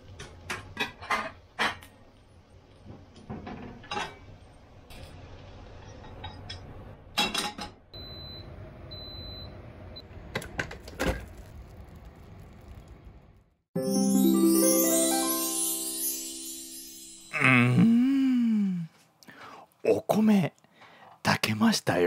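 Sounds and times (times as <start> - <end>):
rice cooker beeping: 8.0 - 9.6.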